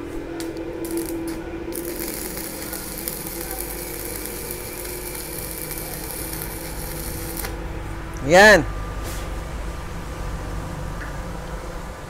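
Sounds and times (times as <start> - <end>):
welding arc crackling: 0.4 - 7.7.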